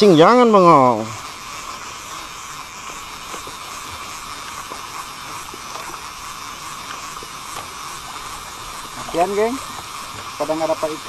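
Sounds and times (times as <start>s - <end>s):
fishing reel clicking: 0.0s - 11.0s
steady hiss: 0.0s - 11.0s.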